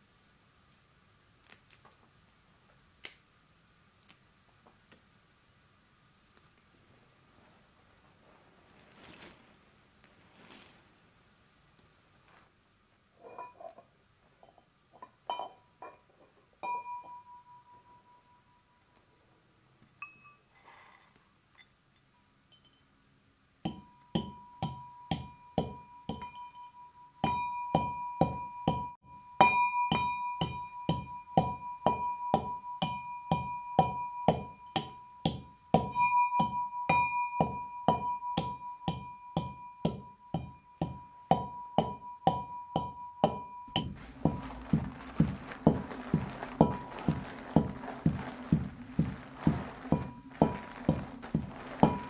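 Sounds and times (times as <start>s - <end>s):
brass pestle pounding in mortar: 23.7s - 26.4s, 27.2s - 52.0s.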